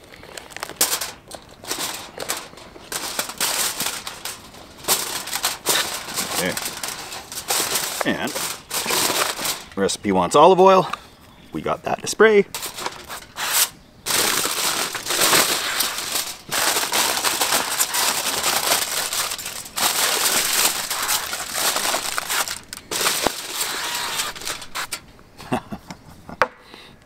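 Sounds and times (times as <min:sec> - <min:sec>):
foil crinkling: 0:00.0 - 0:10.2, 0:12.5 - 0:25.1.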